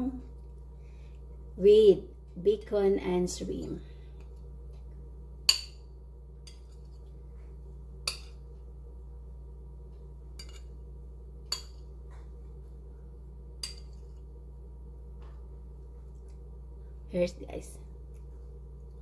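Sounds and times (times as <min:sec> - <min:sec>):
metal spoon clinking on glass plate: 0:10.4 - 0:10.7.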